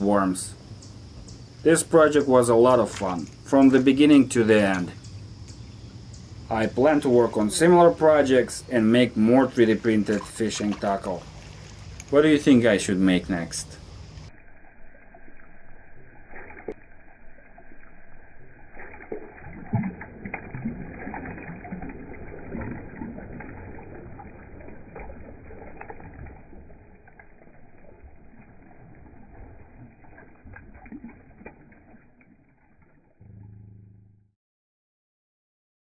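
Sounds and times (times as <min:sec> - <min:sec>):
low gurgles and small clicks: 0:00.8 - 0:33.9
water sloshing around a hand: 0:02.1 - 0:05.1, 0:06.6 - 0:14.3, 0:18.4 - 0:33.2.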